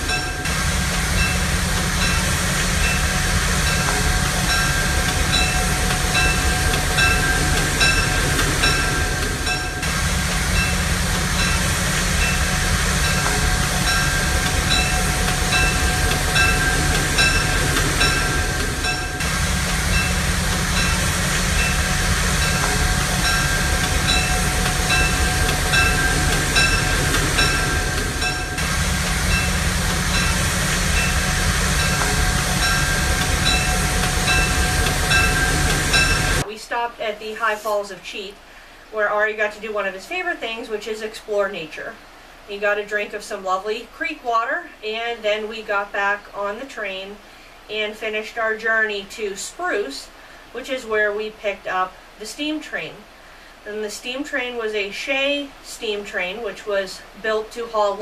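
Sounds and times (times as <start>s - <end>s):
regular clicking of train wheels: 0.0s - 36.5s
train rumbling on track: 0.0s - 36.5s.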